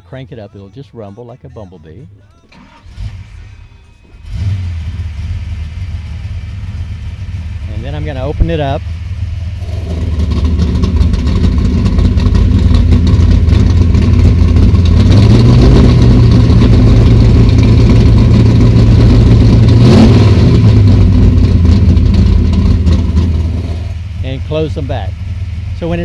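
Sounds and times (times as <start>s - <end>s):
car engine revving: 2.5s - 26.0s.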